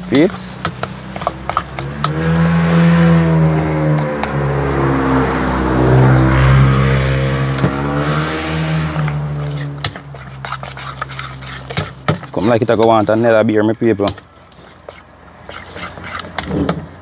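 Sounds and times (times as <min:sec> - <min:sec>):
vehicle engine running: 0:00.0 - 0:10.7.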